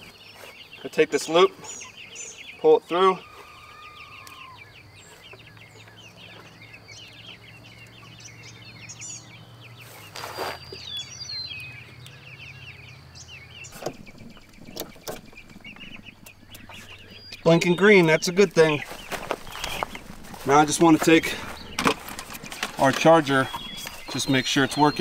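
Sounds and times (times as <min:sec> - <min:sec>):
chicks peeping: 0:00.0 - 0:25.0
brief rustle: 0:09.8 - 0:10.7.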